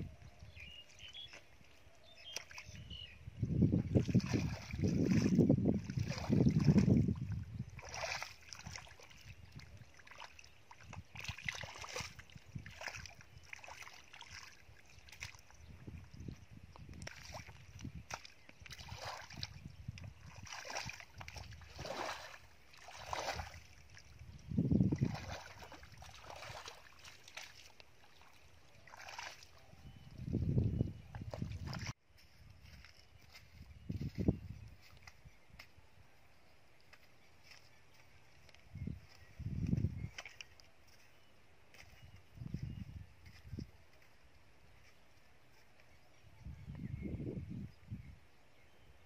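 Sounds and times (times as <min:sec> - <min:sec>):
bare feet squelching in mud: 0:03.9 - 0:30.4, 0:31.1 - 0:35.8, 0:36.7 - 0:45.8.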